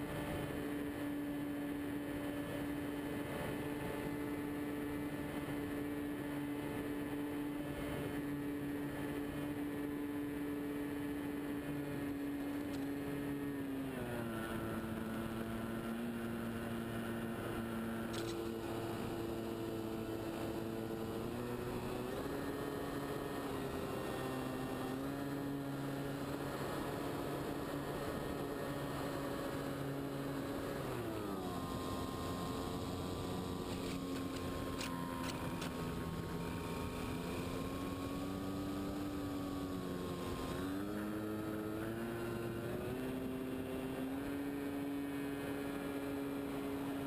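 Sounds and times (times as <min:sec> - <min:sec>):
model plane motor humming: 0:00.0 - 0:47.0.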